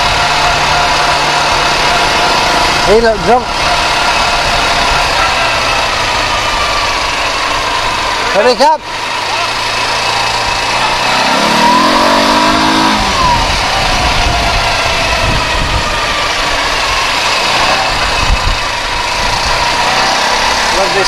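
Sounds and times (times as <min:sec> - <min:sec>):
quad bike engine pulling away: 0:00.0 - 0:21.0.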